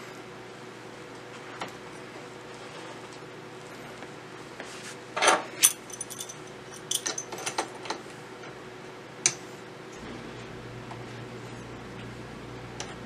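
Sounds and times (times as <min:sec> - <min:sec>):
metal tool clinks and clicks: 0:05.6 - 0:07.5.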